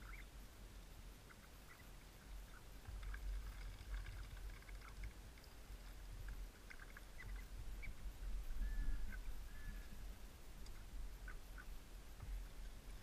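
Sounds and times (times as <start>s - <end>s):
ducks calling: 0.0s - 0.3s, 1.2s - 5.1s, 6.2s - 10.1s.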